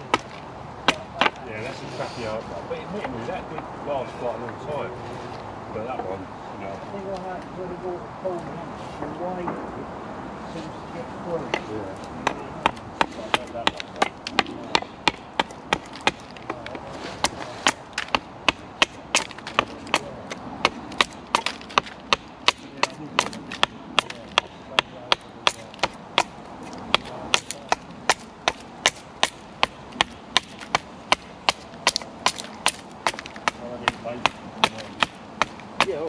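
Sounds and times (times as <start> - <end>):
hatchet chopping wood: 0.0 - 1.5, 11.5 - 36.0.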